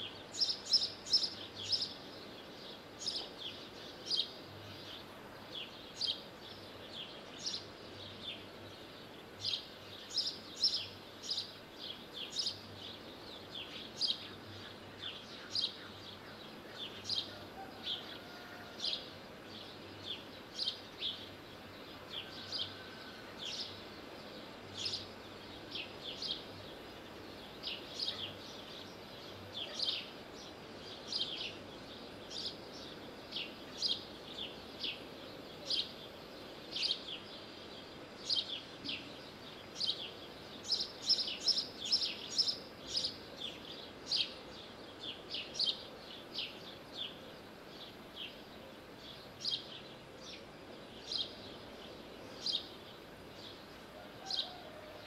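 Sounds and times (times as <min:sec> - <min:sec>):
bird chirping: 0:00.0 - 0:55.0
steady background hiss: 0:00.0 - 0:55.0.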